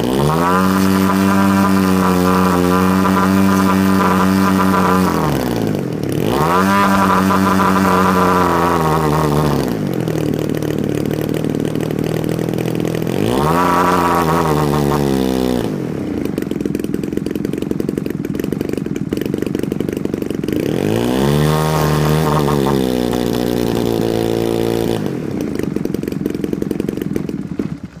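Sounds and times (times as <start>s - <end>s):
model airplane engine misfiring: 0.0s - 28.0s.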